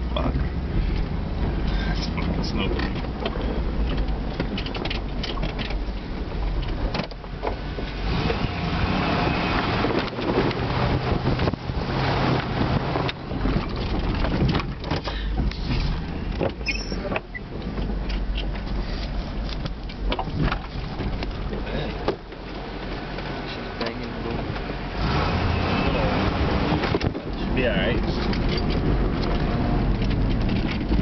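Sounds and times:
knocks and rattles: 0:02.2 - 0:08.5, 0:12.3 - 0:24.7, 0:26.6 - 0:31.0.

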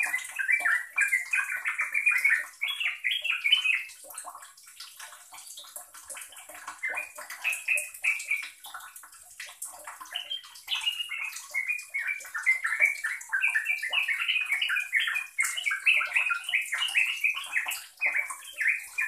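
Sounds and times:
bird chattering song: 0:00.0 - 0:04.0, 0:06.8 - 0:08.6, 0:10.0 - 0:19.0.

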